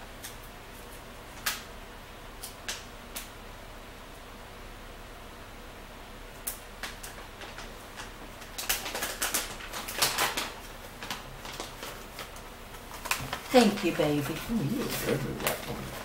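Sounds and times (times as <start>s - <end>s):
crackers crunching: 6.4s - 16.0s.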